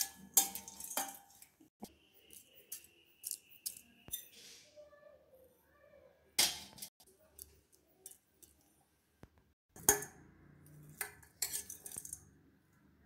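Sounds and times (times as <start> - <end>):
spoon scraping and clinking on pot: 0.0 - 1.6, 2.3 - 4.4, 9.8 - 12.4.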